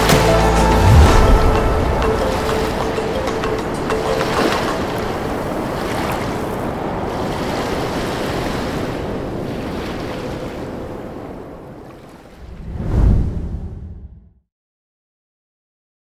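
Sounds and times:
steady rushing ambience: 0.0 - 9.3.

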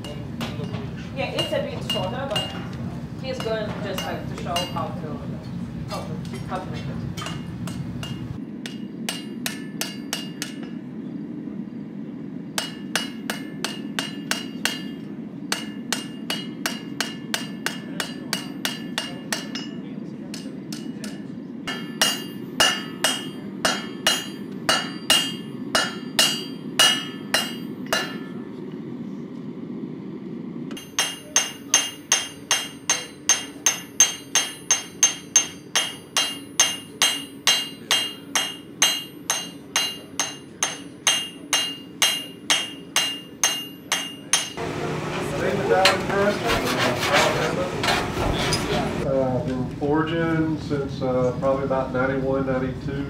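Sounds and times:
hammer striking steel on anvil: 0.0 - 2.8, 3.4 - 4.9, 7.2 - 10.8, 12.6 - 28.4, 30.7 - 45.0
steady low rumble: 0.0 - 17.4, 23.3 - 30.7.

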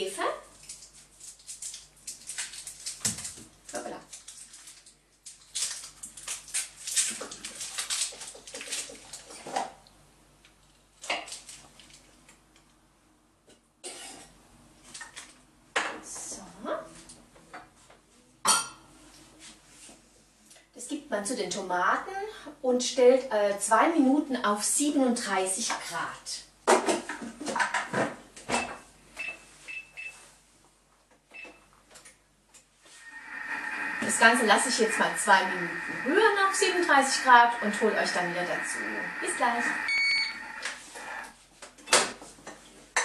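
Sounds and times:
packaging rustling and scraping: 4.1 - 9.4
short high beeps: 33.2 - 41.2.

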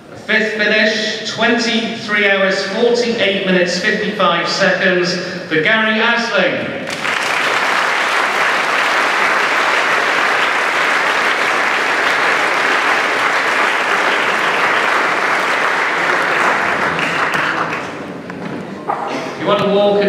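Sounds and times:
audience applauding: 6.8 - 18.2.

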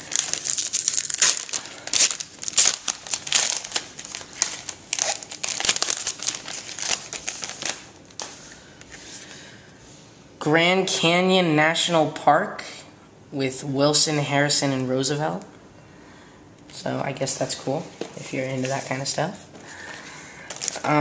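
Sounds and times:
plastic wrapping crinkling: 0.0 - 9.1, 19.8 - 21.0.

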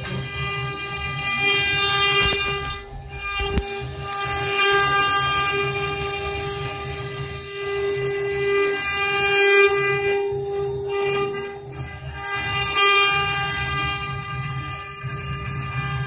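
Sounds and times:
low pulsing rumble: 0.0 - 8.6
router spindles whining: 0.0 - 16.0.

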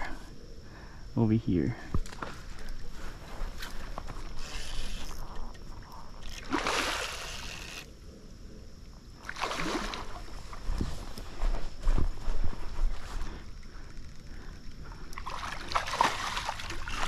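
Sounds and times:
fish splashing in stream: 6.4 - 7.9, 9.2 - 10.4, 15.2 - 17.0.

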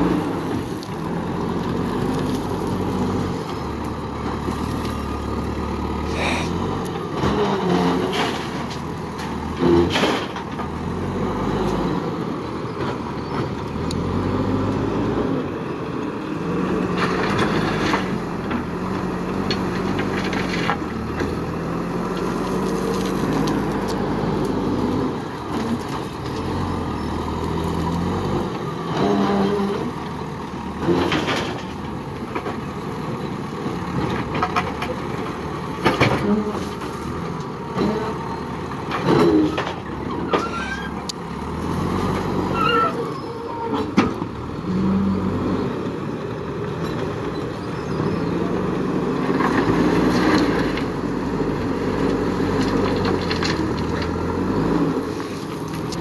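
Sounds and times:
backhoe diesel engine revving: 0.0 - 56.0
soil and stones hitting truck bed: 6.2 - 11.0, 16.8 - 26.8, 30.8 - 32.7, 33.9 - 38.2, 38.8 - 44.3, 51.6 - 56.0.

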